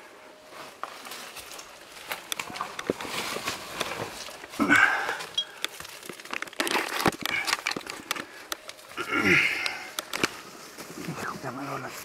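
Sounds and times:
leaves and rubble crunching underfoot: 0.0 - 12.0.

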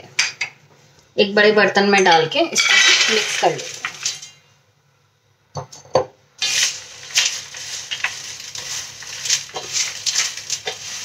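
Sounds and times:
fried snacks rustling on steel plate: 2.6 - 4.3, 6.4 - 11.0.

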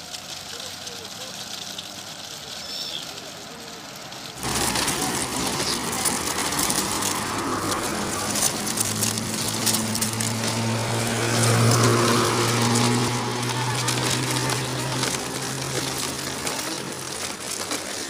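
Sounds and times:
rush of noise: 4.2 - 18.0.

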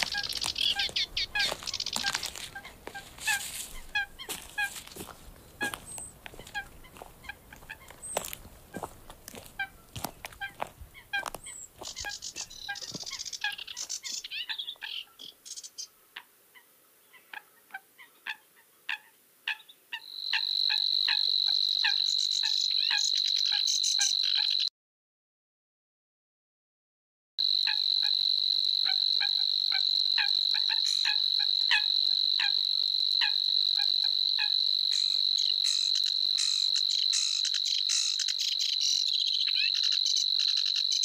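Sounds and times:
coot short sharp calls: 0.0 - 4.8, 5.6 - 8.9
high reeling bird trill: 0.0 - 15.8, 20.0 - 24.7, 27.5 - 41.0
rapid higher birdsong: 0.0 - 16.1, 34.9 - 41.0.

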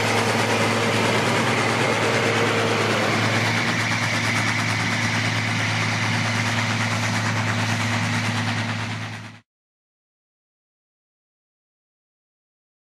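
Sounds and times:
tractor diesel engine running: 0.0 - 9.4.

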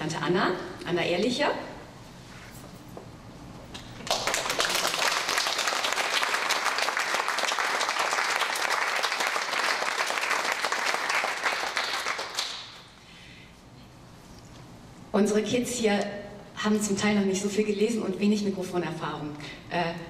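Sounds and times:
audience applauding: 4.0 - 12.9.

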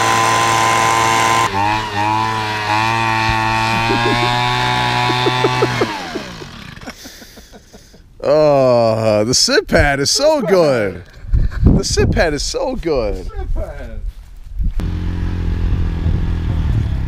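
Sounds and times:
leaf blower running: 0.0 - 7.2, 14.8 - 17.0.

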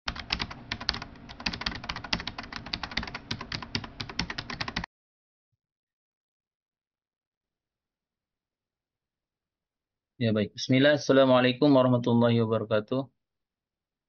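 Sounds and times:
fast keyboard-like clicking: 0.1 - 4.9.

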